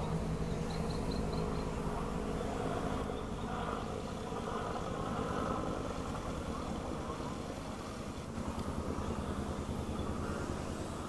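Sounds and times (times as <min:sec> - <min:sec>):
low engine rumble: 0:00.0 - 0:11.0.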